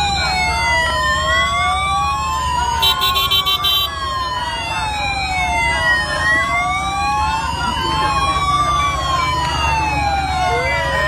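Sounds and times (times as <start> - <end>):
police sirens wailing: 0.0 - 11.0.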